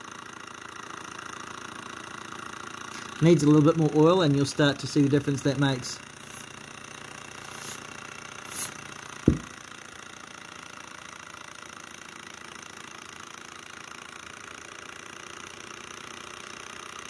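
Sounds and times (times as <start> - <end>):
model engine running: 0.0 - 17.0
spray lubricant hiss: 7.4 - 9.5
spray can knocking on table: 8.5 - 9.5.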